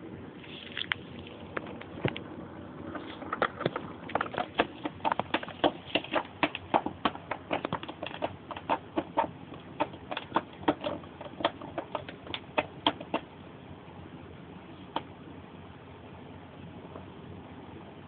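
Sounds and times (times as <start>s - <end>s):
kitten clawing plastic toy: 2.9s - 13.3s.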